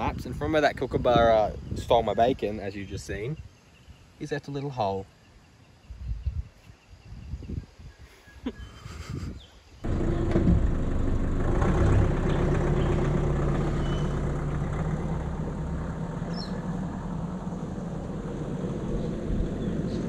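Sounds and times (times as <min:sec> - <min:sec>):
vehicle engine driving off: 0:09.8 - 0:20.0.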